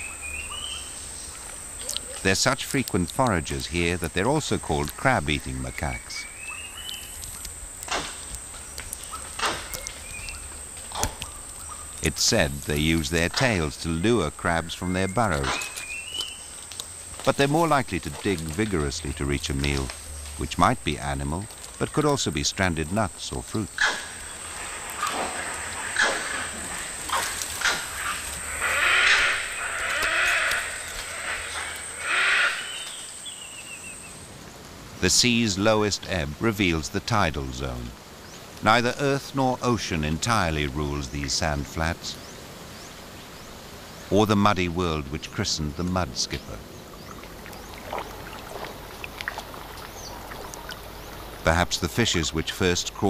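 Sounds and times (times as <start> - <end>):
monkeys calling: 0.0 - 7.6, 8.6 - 33.8, 44.1 - 53.0.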